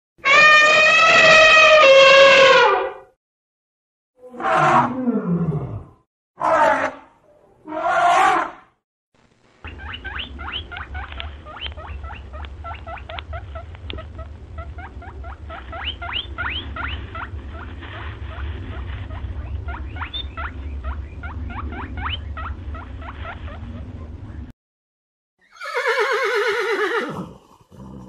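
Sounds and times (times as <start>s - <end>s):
steady low hum: 9.2s - 24.5s
rabbit squeaking: 9.6s - 24.4s.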